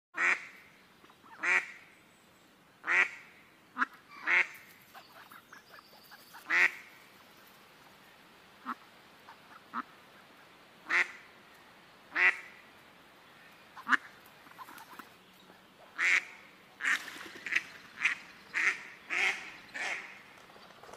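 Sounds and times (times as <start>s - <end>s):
ducks quacking: 2.8s - 7.1s, 8.6s - 11.3s, 12.1s - 12.6s, 13.7s - 15.2s, 15.8s - 20.3s
ducks low chatter: 13.4s - 20.4s.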